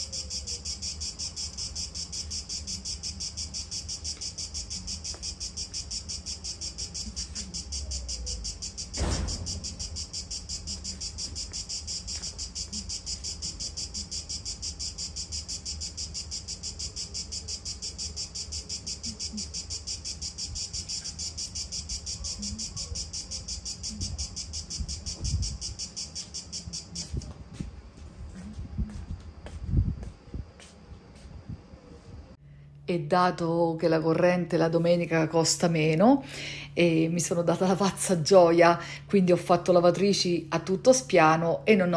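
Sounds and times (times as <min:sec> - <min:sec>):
insect chorus chirring: 0:00.0 - 0:27.6
thump: 0:09.0 - 0:10.0.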